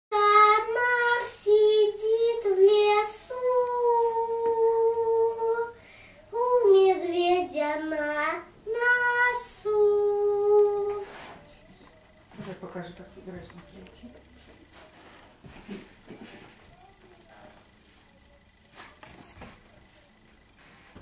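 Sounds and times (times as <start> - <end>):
boy singing unaccompanied: 0.1 - 11.9.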